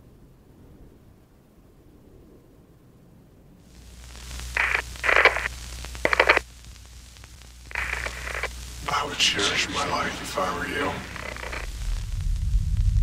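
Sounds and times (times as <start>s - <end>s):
low hum: 0.0s - 13.0s
harsh crackling bursts: 3.6s - 13.0s
static hiss: 3.6s - 13.0s.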